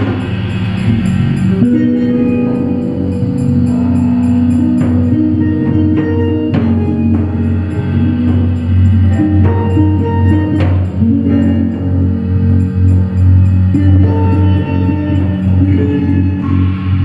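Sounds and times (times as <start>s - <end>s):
drum hits with ringing tails: 0.0s - 17.0s
electric bass and guitar notes: 0.0s - 17.0s
low drone: 0.0s - 17.0s.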